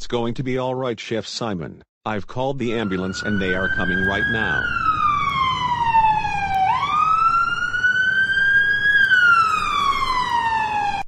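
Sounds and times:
ambulance siren wailing: 2.7 - 11.0.

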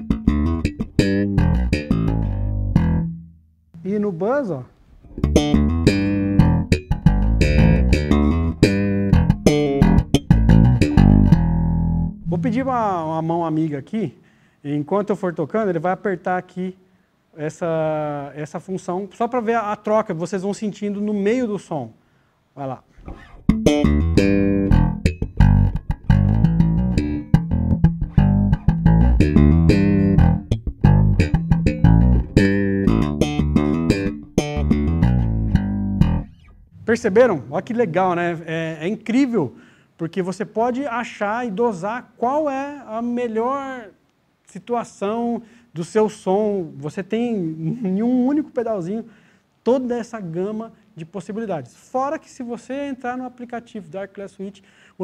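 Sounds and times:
electric bass guitar plucked notes: 0.0 - 3.4, 5.0 - 13.0, 23.0 - 36.9.

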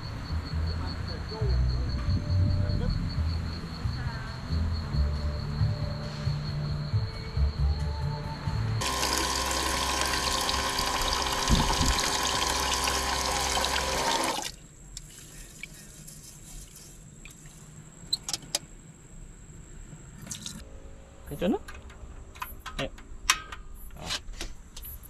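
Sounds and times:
tap water running into metal pot: 8.8 - 14.6.

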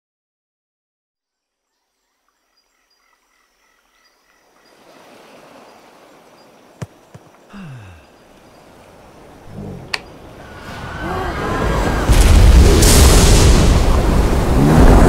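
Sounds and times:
faint chirps: 1.4 - 10.3
steady wash of water: 4.4 - 15.0.

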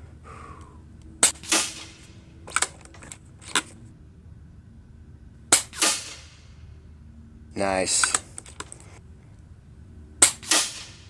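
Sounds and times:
air rifle shot: 1.2 - 2.2, 5.5 - 6.5, 10.2 - 11.0
rifle recocking clicks: 1.2 - 3.8, 7.9 - 8.9.

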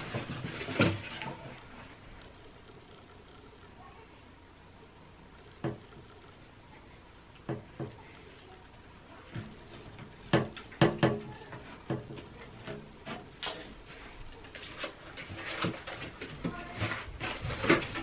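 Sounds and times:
objects knocking in glass tank: 10.1 - 12.2.

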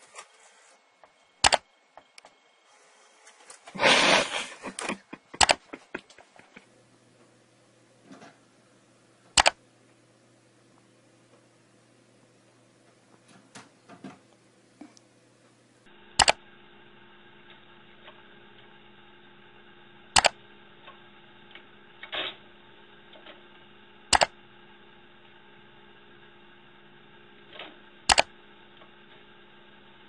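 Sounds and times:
steady hum: 0.0 - 30.0
sharp double clicks: 1.4 - 1.6, 4.7 - 5.8, 9.4 - 9.6, 16.2 - 16.4, 20.2 - 20.4, 24.1 - 24.4, 28.1 - 28.3.

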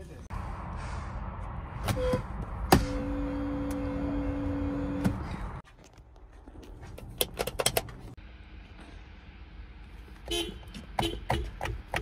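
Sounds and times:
weak car horn: 1.9 - 5.1.

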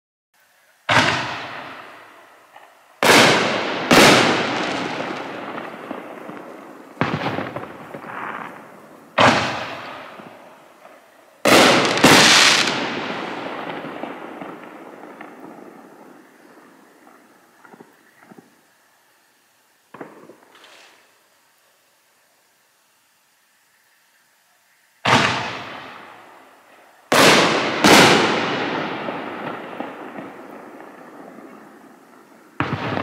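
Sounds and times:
firework shell booms with echo: 0.9 - 10.5, 11.5 - 18.5, 19.9 - 20.8, 25.0 - 26.2, 27.1 - 33.0.

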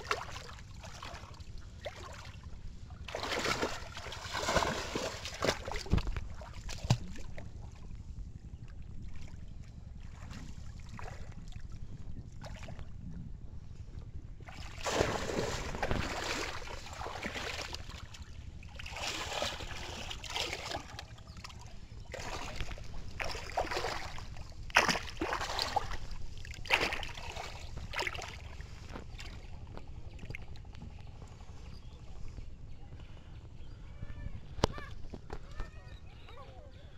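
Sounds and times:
water splashing and sloshing: 0.0 - 7.9, 9.0 - 13.0, 14.4 - 30.9.

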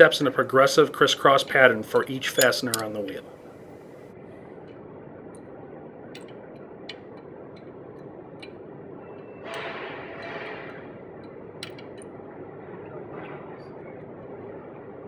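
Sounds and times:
steady background hiss: 0.0 - 15.0
metallic clicks of bolt turning: 2.0 - 3.1, 11.2 - 12.1.

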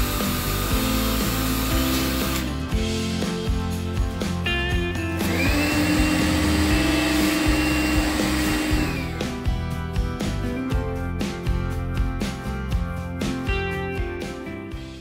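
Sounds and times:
handheld vacuum motor running: 0.0 - 2.6, 5.2 - 9.2
background music: 0.0 - 15.0.

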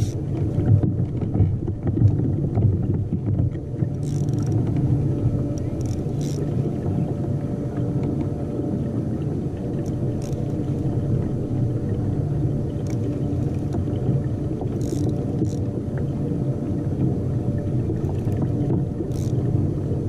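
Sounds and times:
water rumbling against kayak hull: 0.0 - 20.0
faint high ticks: 5.5 - 6.6, 9.8 - 10.9, 12.8 - 13.8, 14.6 - 15.7, 18.0 - 19.4.

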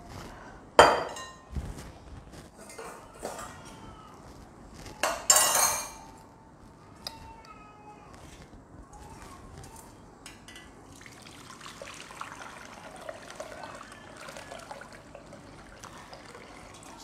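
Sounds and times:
juice trickling through metal sieve: 10.6 - 17.0.

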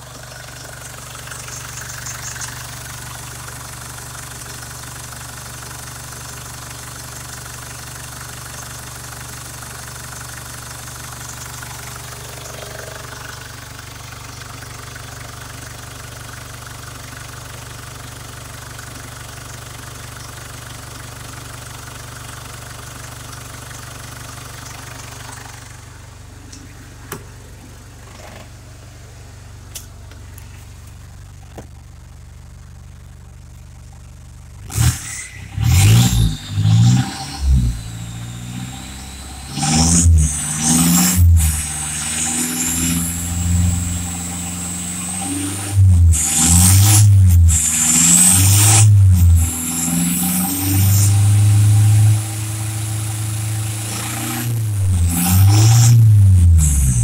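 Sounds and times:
diesel engine idling: 0.0 - 36.9, 41.3 - 45.2.

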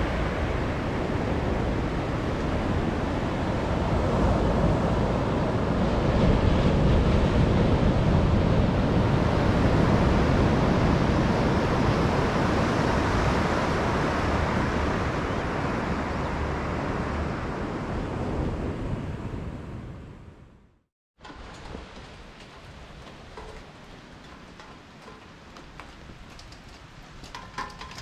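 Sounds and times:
ocean waves breaking: 0.0 - 20.0.

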